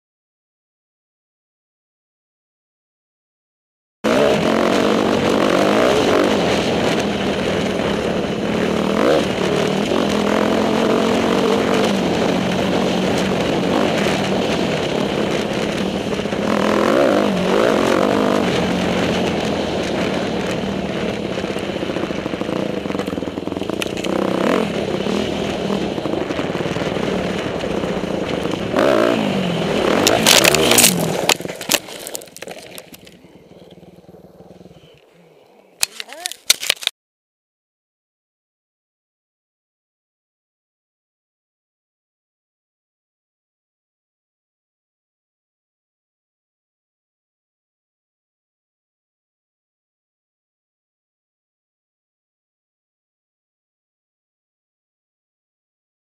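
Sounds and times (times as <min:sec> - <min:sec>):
dirt bike engine revving: 0:04.1 - 0:35.0
motorbike crashing clatter: 0:30.0 - 0:33.2.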